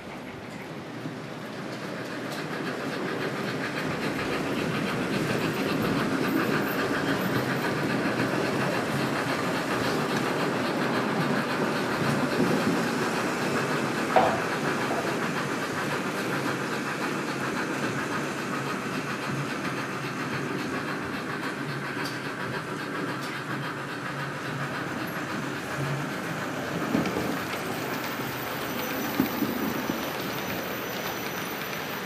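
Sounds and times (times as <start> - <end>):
model trains rumbling on track: 0.0 - 32.0
wheels clicking over rails: 0.0 - 32.0.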